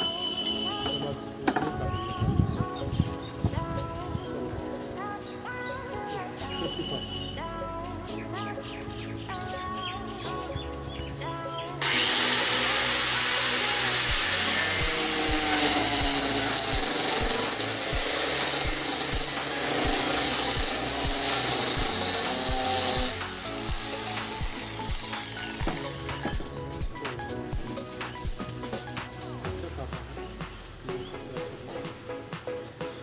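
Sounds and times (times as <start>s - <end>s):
background music with beat: 0.0s - 33.0s
spinning blade cutting wood: 11.8s - 29.1s.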